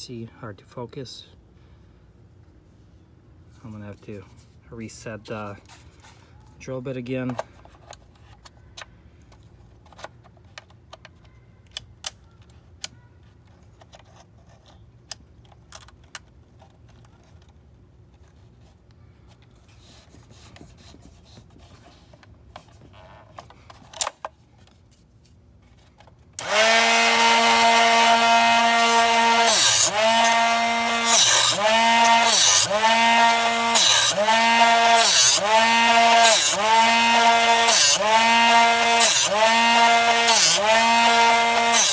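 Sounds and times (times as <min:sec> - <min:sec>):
bit grinding hiss: 0:26.4 - 0:41.9
sharpener motor whine: 0:26.4 - 0:41.9.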